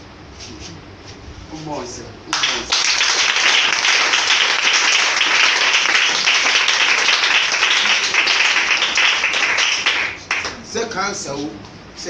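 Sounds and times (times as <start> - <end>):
crowd applauding: 2.3 - 10.6.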